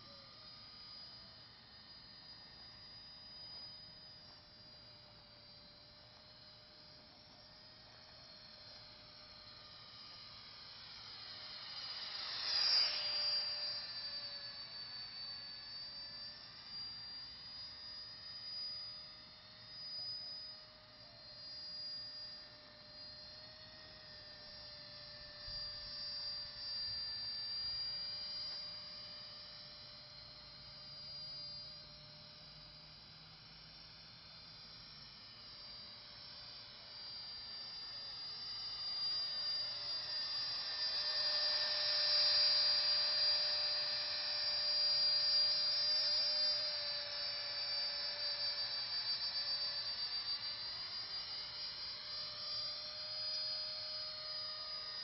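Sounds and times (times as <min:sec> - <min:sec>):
drone motors whining: 0:02.3 - 0:32.6, 0:35.8 - 0:55.0.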